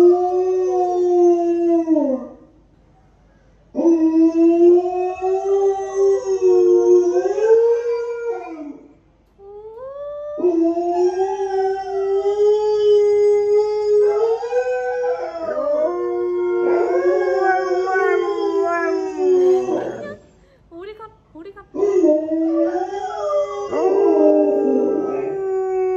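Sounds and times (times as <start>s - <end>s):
dog howling: 3.8s - 8.8s, 9.8s - 20.2s, 21.7s - 25.9s
recorded wolf howls: 3.8s - 8.8s, 9.9s - 20.2s, 21.8s - 25.9s.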